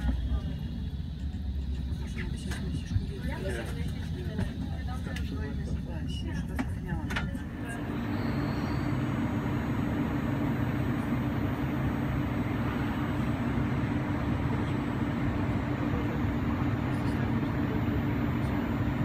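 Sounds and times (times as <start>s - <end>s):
electric train humming: 6.9s - 19.0s.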